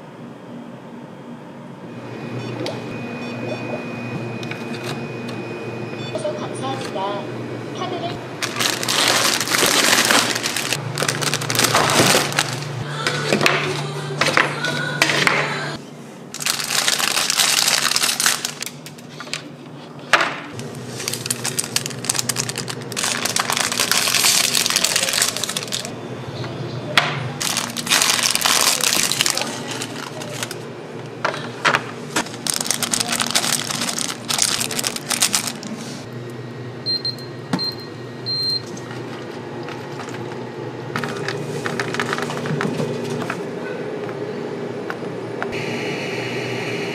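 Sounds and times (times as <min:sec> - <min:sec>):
low machine hum: 0:00.0 - 0:46.9
plastic packets crinkling: 0:08.4 - 0:12.8, 0:16.4 - 0:19.4, 0:20.6 - 0:25.9, 0:27.4 - 0:30.6, 0:32.2 - 0:35.8, 0:41.0 - 0:42.6.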